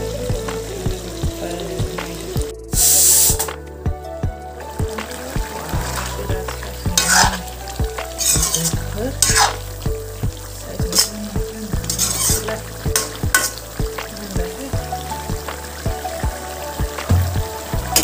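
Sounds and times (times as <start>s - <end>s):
curry sizzling in a pan: 0.0s - 3.5s, 4.6s - 18.0s
metal spoon scraping a pan: 7.0s - 9.6s, 10.9s - 11.2s, 11.8s - 13.6s.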